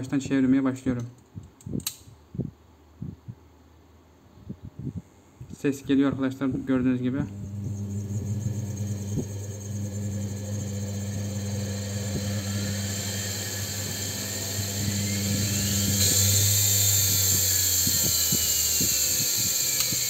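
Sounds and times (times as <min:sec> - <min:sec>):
electrical hum: 0:04.4 - 0:20.0
motor spinning with whine: 0:07.2 - 0:20.0.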